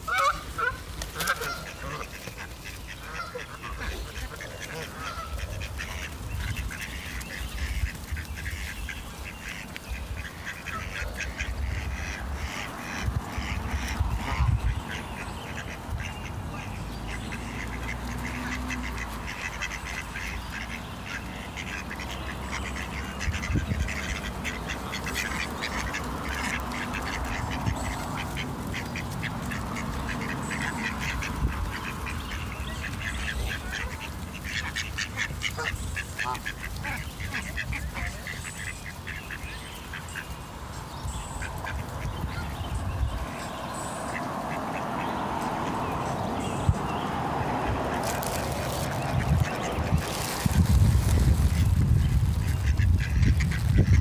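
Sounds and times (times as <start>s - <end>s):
birds calling rapidly: 0.0s - 54.0s
steady low rumble: 46.7s - 54.0s.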